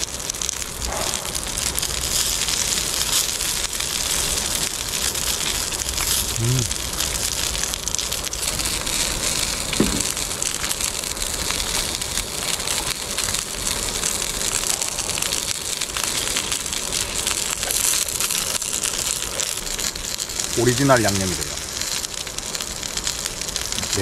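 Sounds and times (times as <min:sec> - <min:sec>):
crackling hiss: 0:00.0 - 0:24.0
crunchy chewing: 0:00.6 - 0:20.4.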